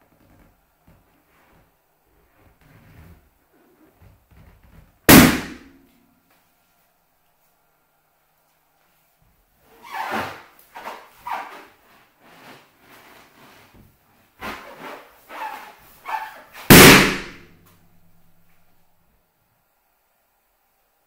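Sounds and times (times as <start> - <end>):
balloon popping: 5.1 - 5.8, 16.6 - 17.6
balloon rubbing: 14.4 - 17.5.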